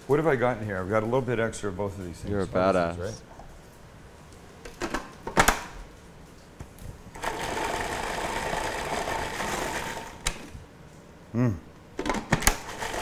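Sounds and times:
food processor motor whining: 7.2 - 10.3, 12.5 - 13.0.

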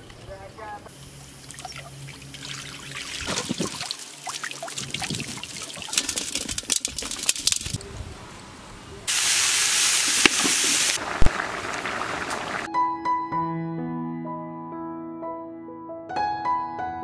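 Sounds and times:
water splashing and sloshing: 0.9 - 7.8
loud hiss of water: 9.1 - 12.7.

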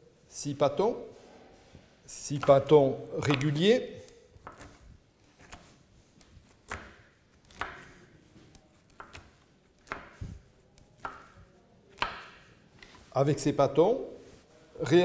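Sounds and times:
bench scraper tapping on stone: 12.0 - 12.5.

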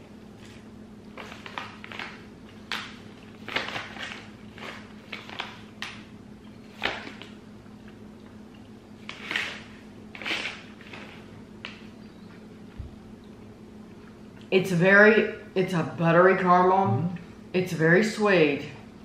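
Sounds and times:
steady low hum: 0.0 - 19.0
plastic and paper wrappers crinkling: 1.2 - 6.0, 9.0 - 11.8.

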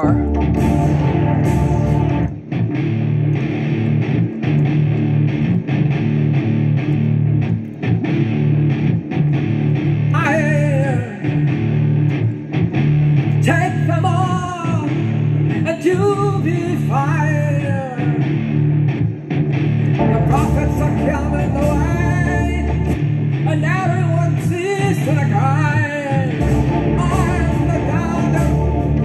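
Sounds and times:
person singing: 0.0 - 2.3, 20.0 - 29.0
keyboards: 0.0 - 2.6, 19.8 - 24.2, 26.3 - 29.0
distorted electric guitar chords: 0.0 - 29.0.

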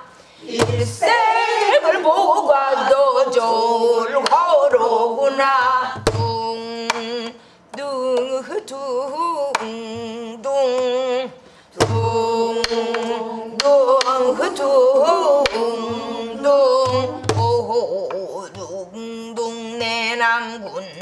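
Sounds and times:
woman singing: 0.0 - 21.0.

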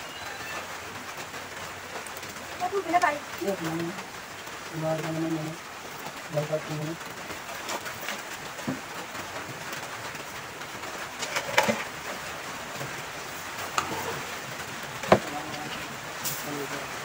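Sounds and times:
ladle stirring thick porridge: 13.6 - 14.5.

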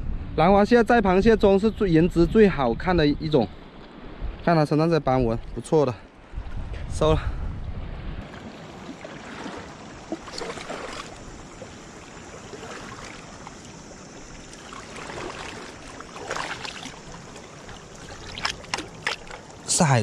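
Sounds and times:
seawater lapping among rocks: 8.1 - 20.0
water sloshing: 8.2 - 20.0.

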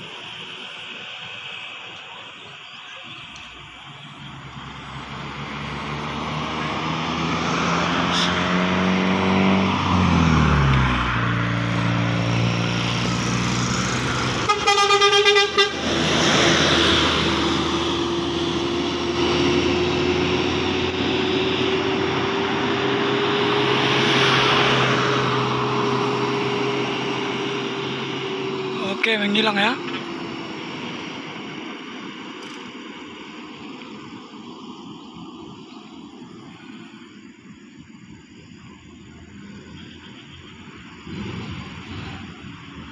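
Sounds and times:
bus passing by: 0.0 - 42.9
steady road noise: 0.0 - 42.9
rapid horn toots: 14.3 - 16.4.

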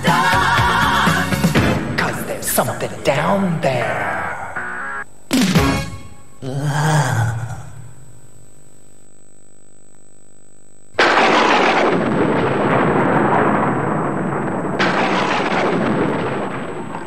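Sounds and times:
thunder rumbling: 11.0 - 17.0.

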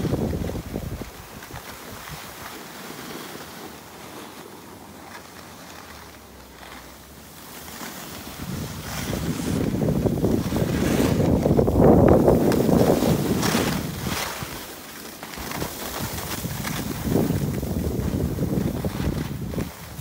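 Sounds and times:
wind buffeting microphone: 0.0 - 2.5, 8.1 - 14.7, 15.4 - 20.0
snow scraping under skis: 0.0 - 20.0.

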